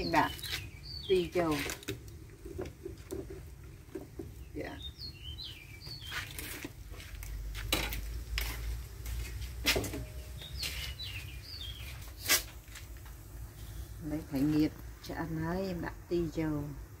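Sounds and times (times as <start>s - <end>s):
small bird chirping: 0.0s - 1.6s, 4.4s - 6.5s, 10.0s - 12.0s.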